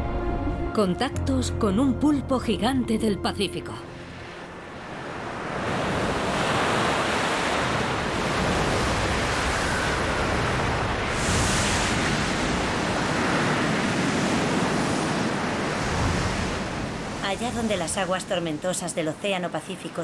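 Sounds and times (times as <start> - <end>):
surf crashing on rocks: 4.6 - 19.4.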